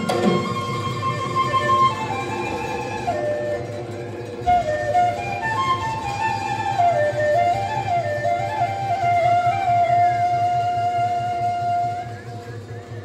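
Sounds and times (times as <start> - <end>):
flute melody: 0.0 - 13.0.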